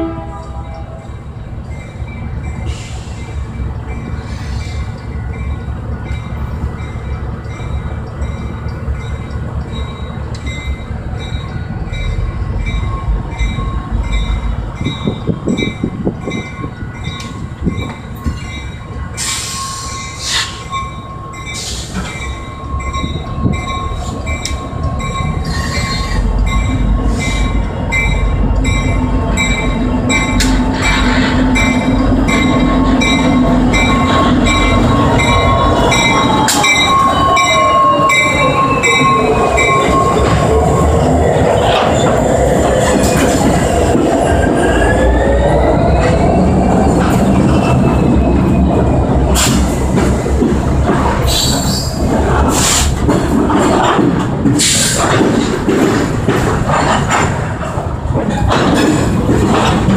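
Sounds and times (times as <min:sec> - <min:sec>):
diesel locomotive engine rumble: 0:00.0 - 0:59.9
train wheels squealing: 0:01.7 - 0:43.7, 0:51.2 - 0:52.9.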